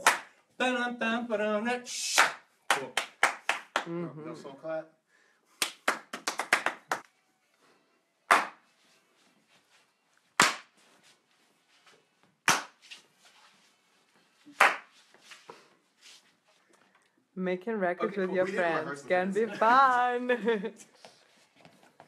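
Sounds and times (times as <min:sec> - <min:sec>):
sharp hand claps: 0:00.0 - 0:00.4, 0:02.1 - 0:03.9, 0:05.6 - 0:07.1, 0:08.3 - 0:08.6, 0:10.4 - 0:10.8, 0:12.4 - 0:12.8, 0:14.5 - 0:15.0.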